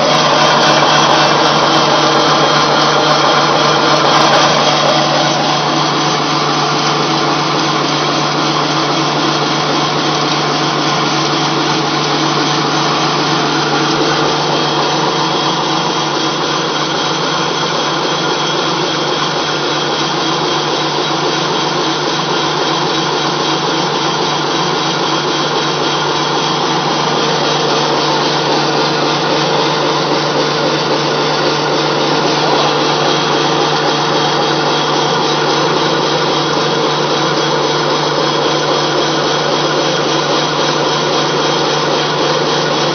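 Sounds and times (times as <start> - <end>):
pellet mill whirring: 0.0 - 42.9.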